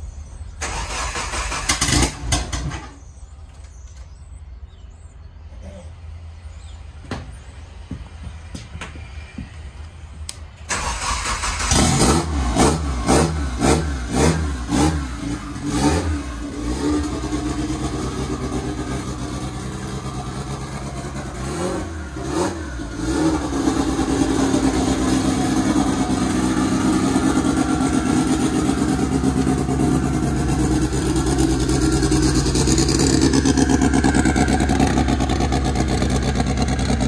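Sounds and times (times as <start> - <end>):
car engine starting and revving: 0.6 - 2.9, 10.7 - 37.0
car engine idling: 13.5 - 37.0.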